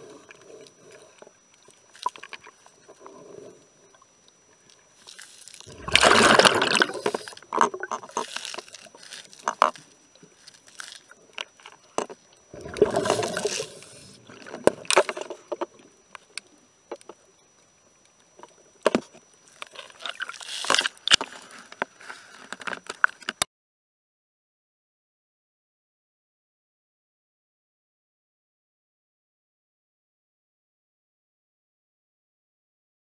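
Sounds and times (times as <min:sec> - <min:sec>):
underwater rushing burst: 0:05.7 - 0:07.3, 0:12.5 - 0:14.5.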